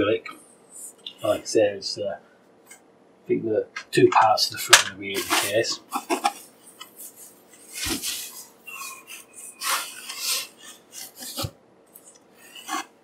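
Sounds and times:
foam sheets rustling: 0:05.1 - 0:06.4, 0:07.0 - 0:08.5.

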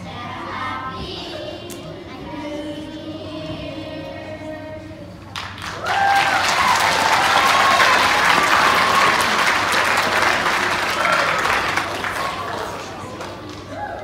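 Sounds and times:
audience applause: 0:05.4 - 0:14.0.

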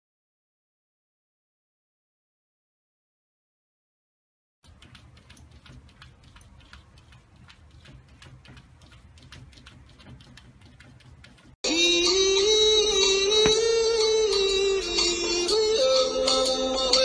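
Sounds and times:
cat paws tapping on glass: 0:04.6 - 0:11.6, 0:13.3 - 0:14.0.

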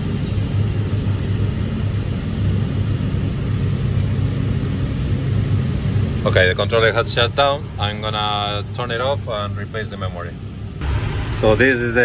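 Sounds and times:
shop machinery humming: 0:10.3 - 0:12.0.

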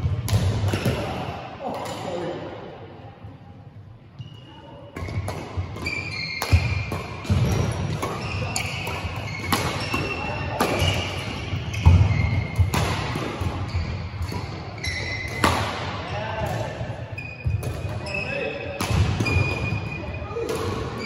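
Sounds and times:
racket hitting shuttlecock: 0:00.1 - 0:02.0, 0:05.0 - 0:18.0, 0:18.8 - 0:19.8
shoes squeaking on floor: 0:04.2 - 0:12.6, 0:13.6 - 0:15.4, 0:17.1 - 0:18.6.

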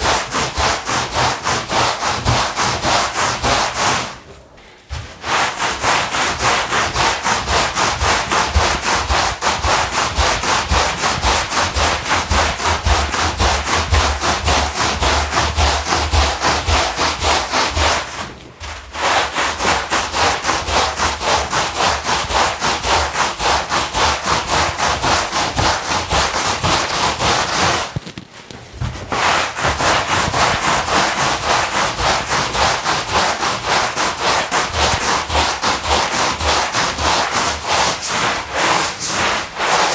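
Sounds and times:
brush scrubbing wet rug: 0:00.0 - 0:39.9.

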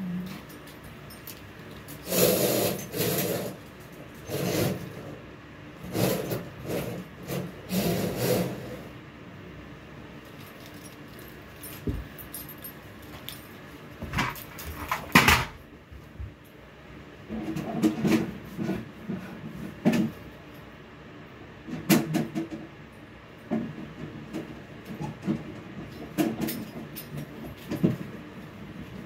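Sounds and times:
sharp knocks and clatters: 0:14.0 - 0:15.6.

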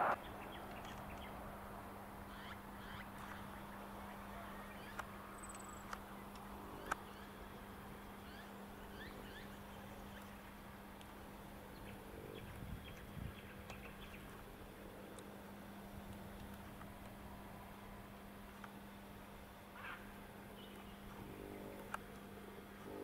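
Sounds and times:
birds chirping: 0:00.0 - 0:01.4, 0:02.3 - 0:10.8, 0:11.7 - 0:14.4, 0:19.8 - 0:21.8
steady low hum: 0:00.0 - 0:23.0.

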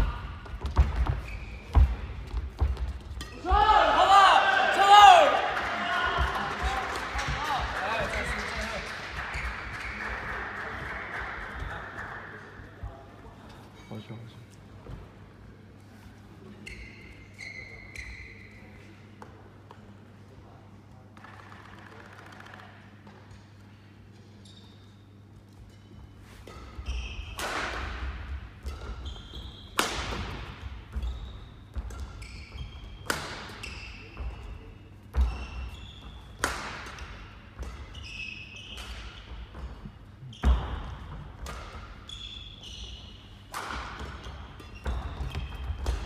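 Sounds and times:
shoes squeaking on court: 0:00.6 - 0:03.0, 0:28.7 - 0:29.8, 0:30.9 - 0:36.3, 0:37.8 - 0:41.1, 0:41.7 - 0:46.0.

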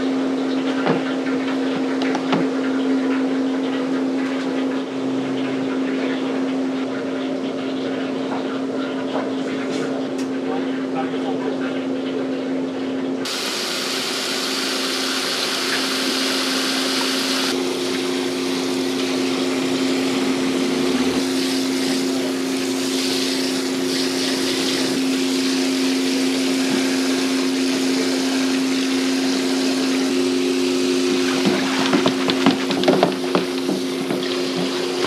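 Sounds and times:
low mechanical hum: 0:00.0 - 0:35.0
tap water spraying: 0:00.6 - 0:04.6, 0:13.2 - 0:35.0.

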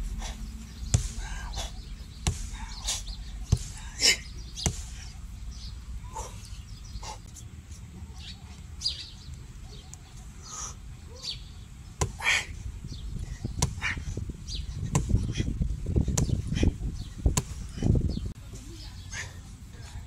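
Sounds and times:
hand strikes thudding on tree trunk: 0:00.9 - 0:01.6, 0:02.2 - 0:05.1, 0:12.0 - 0:12.4, 0:13.5 - 0:14.0, 0:14.8 - 0:15.4, 0:16.0 - 0:16.4, 0:17.3 - 0:17.8.

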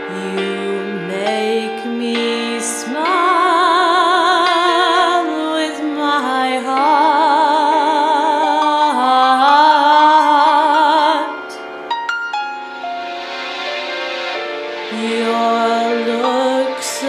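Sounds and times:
person singing jazz ballad: 0:00.0 - 0:11.7.

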